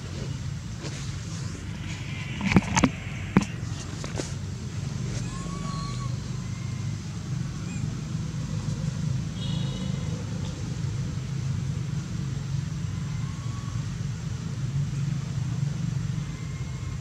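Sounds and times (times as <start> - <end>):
steady low rumble: 0.0 - 5.4.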